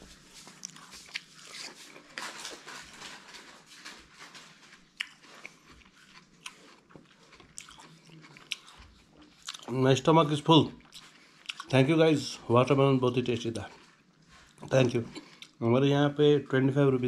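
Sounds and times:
watermelon crunching while chewed: 0.0 - 9.9, 10.7 - 12.0.

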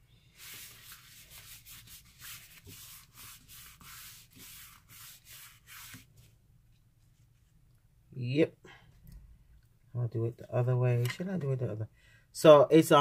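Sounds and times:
soft rubbing strokes: 0.0 - 7.7.

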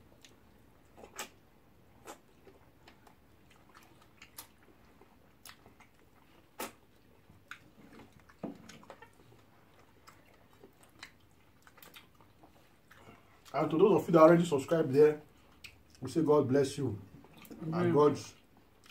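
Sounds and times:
wet mouth smacks chewing: 0.2 - 1.4, 2.0 - 13.5, 15.4 - 16.1, 18.4 - 18.9.

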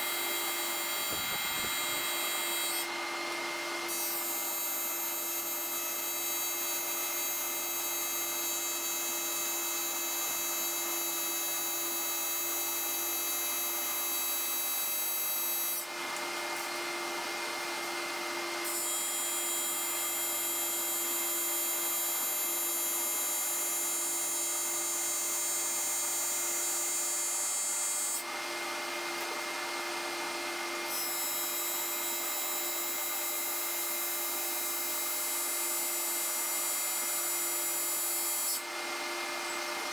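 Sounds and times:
electric welding arc: 0.0 - 2.8.

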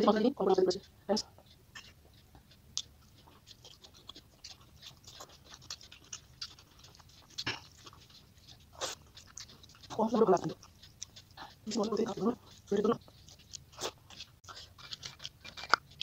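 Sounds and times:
wet chewing and mouth clicks: 0.0 - 16.0
mouth smacks: 1.2 - 11.8.

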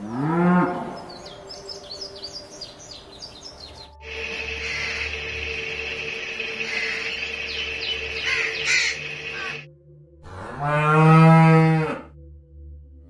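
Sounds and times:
cow mooing: 0.0 - 1.2, 10.3 - 12.1
steady hum: 4.0 - 9.6
short bird calls: 6.4 - 9.6.

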